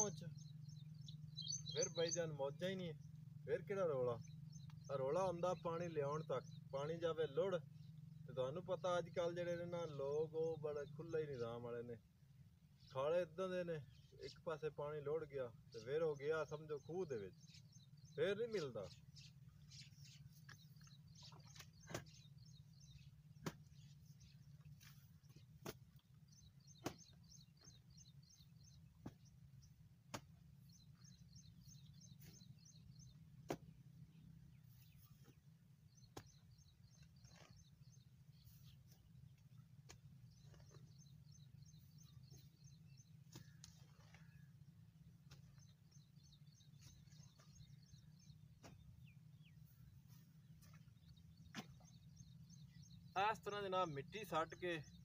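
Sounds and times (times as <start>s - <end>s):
birds twittering: 0.0s - 55.0s
hoe striking damp soil: 20.4s - 31.1s, 31.7s - 37.8s, 38.5s - 41.2s, 43.1s - 45.8s, 46.8s - 49.2s.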